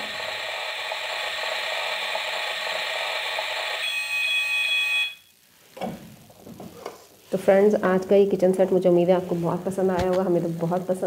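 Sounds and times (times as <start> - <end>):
toy oven electronic tone: 0.0 - 5.3.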